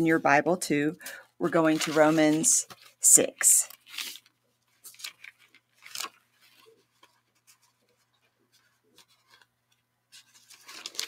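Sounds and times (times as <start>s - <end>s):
paper pages swishing: 1.5s - 9.5s.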